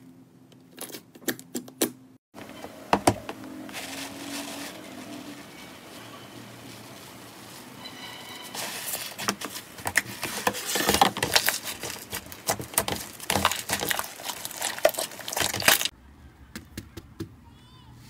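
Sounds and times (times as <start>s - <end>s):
slime crackling and popping: 10.9s - 15.9s.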